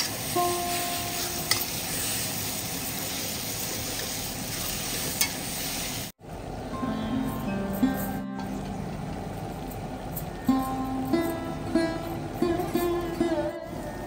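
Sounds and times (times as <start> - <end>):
food sizzling in a pan: 0.0 - 6.2.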